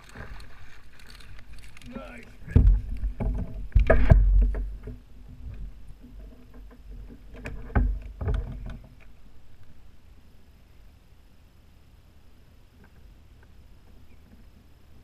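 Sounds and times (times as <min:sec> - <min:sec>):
knocks in plastic kayak: 0:02.5 - 0:05.0.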